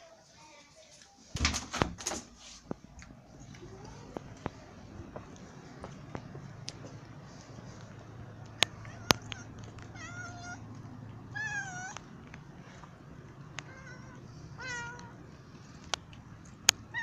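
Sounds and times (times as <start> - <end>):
faint steady hum: 0.1 - 17.0
cat meowing: 8.6 - 10.7, 11.3 - 12.0, 13.6 - 15.2.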